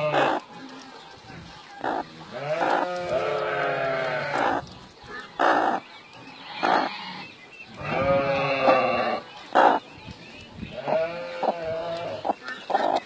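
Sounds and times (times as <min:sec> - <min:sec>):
hen calling: 0:00.0 - 0:00.5, 0:01.8 - 0:09.9.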